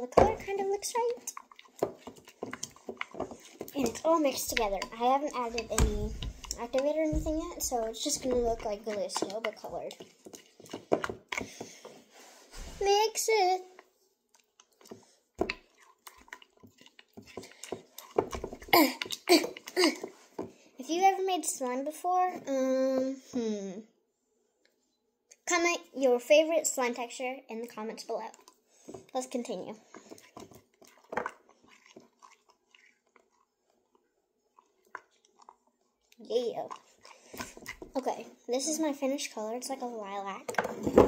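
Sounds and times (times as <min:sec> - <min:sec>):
spoon stirring sticky glue: 0:00.0 - 0:20.4, 0:28.3 - 0:38.7.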